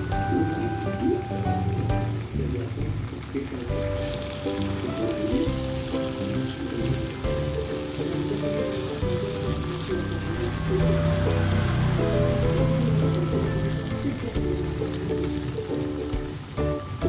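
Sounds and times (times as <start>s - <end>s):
background music: 0.0s - 17.0s
eggs sizzling in a wok: 0.0s - 17.0s.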